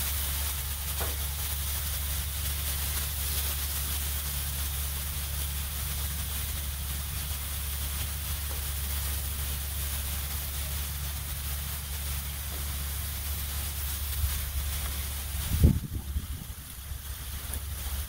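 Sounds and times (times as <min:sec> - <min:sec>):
steak sizzling on a griddle: 0:00.0 - 0:18.0
low rumble: 0:10.6 - 0:18.0.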